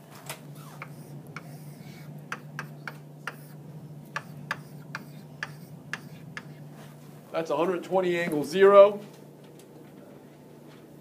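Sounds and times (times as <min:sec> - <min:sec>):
low hum: 0:00.3 - 0:08.0.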